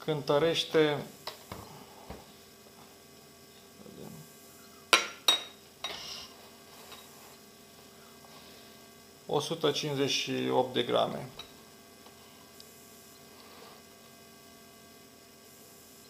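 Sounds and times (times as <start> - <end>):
glass ringing: 4.9 - 6.0.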